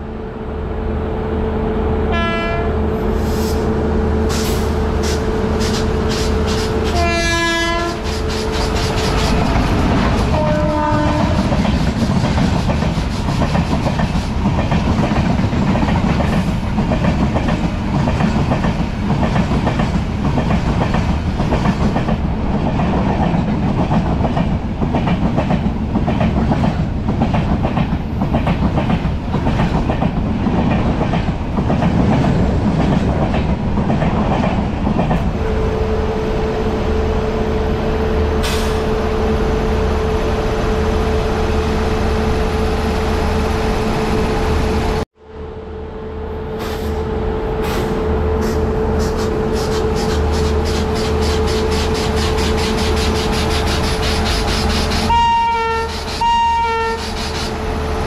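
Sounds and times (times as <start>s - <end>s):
train coaches rumbling past: 0.0s - 58.0s
train horn blasts: 2.1s - 3.0s, 6.8s - 8.3s, 10.2s - 11.5s, 54.9s - 57.2s.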